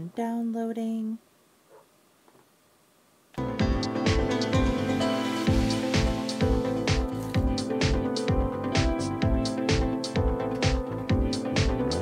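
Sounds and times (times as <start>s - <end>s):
electronic music with steady beat: 3.4s - 12.0s
kick drum: 3.6s - 4.8s, 5.5s - 12.0s.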